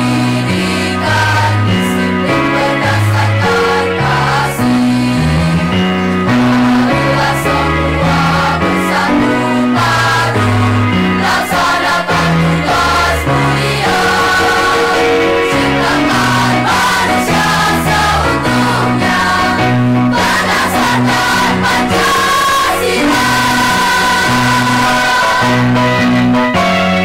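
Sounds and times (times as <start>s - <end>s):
children's choir singing: 0.0s - 26.6s.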